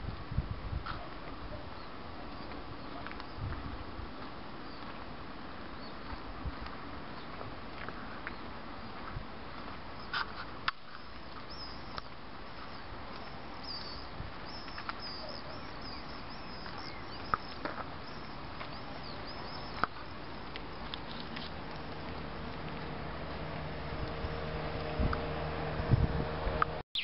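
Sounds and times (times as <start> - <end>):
steady outdoor hiss: 0.0 - 27.0
small birds chirping: 8.0 - 9.0, 9.9 - 23.0.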